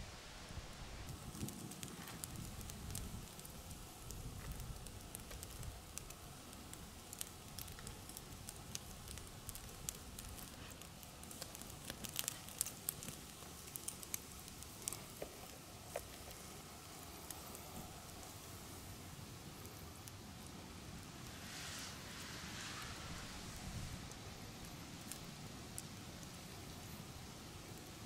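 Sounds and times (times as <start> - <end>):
campfire embers crackling: 0.0 - 28.0
fire sharp pops: 1.1 - 18.9.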